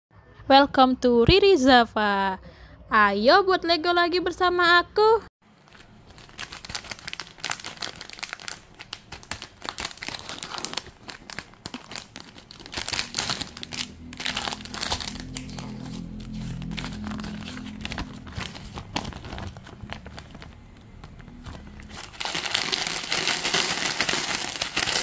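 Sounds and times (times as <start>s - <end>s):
plastic bags crinkling: 5.6s - 25.0s.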